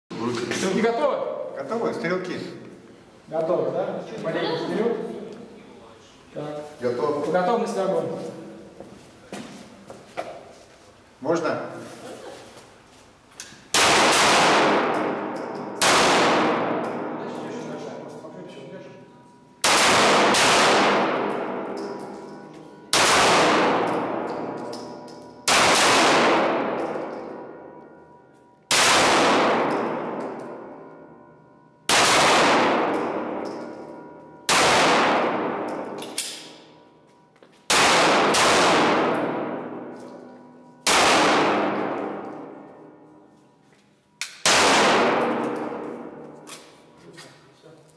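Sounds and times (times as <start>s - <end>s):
pistol shots echoing indoors: 13.4s - 18.2s, 19.6s - 43.3s, 44.2s - 46.9s.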